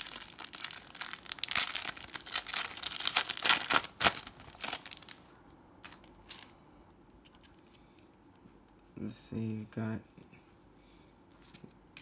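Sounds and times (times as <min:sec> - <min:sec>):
foil wrapper crinkling and tearing: 0:00.0 - 0:06.5
faint rustles of cards: 0:05.0 - 0:12.0.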